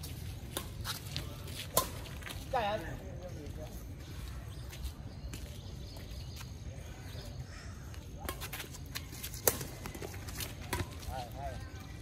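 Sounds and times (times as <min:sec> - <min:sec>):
rackets hitting shuttlecock: 0:00.4 - 0:02.1, 0:08.2 - 0:11.1.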